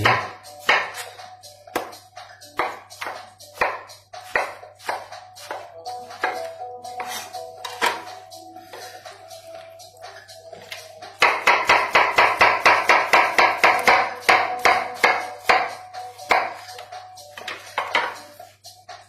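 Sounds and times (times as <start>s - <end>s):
knife chopping potato on plastic board: 0.0s - 8.1s, 11.2s - 18.4s.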